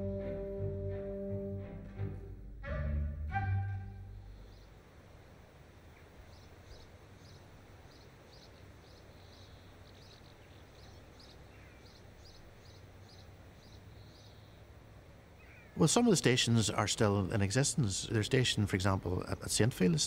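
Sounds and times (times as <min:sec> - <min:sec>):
low steady background noise: 0:00.0 - 0:20.0
small bird chirping: 0:05.9 - 0:14.7.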